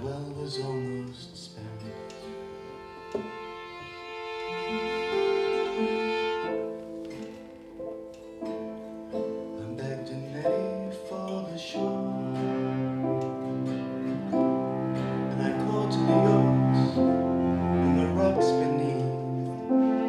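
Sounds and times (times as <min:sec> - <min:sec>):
acoustic guitar: 0:00.0 - 0:20.0
cello: 0:00.0 - 0:20.0
violin: 0:00.0 - 0:20.0
keyboard chords: 0:01.2 - 0:20.0.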